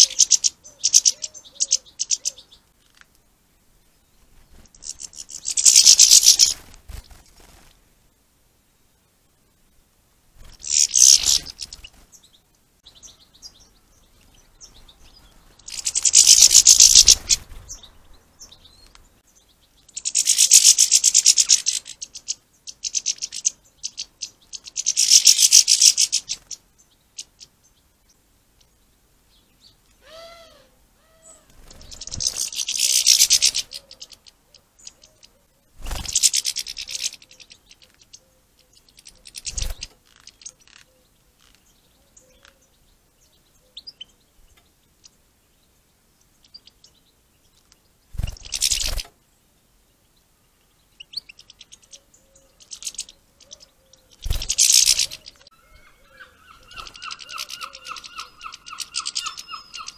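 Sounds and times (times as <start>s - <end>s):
songbird trilling: 0.0s - 2.6s, 4.7s - 6.6s, 10.6s - 11.9s, 12.9s - 26.6s, 29.6s - 42.7s, 50.9s - 59.9s.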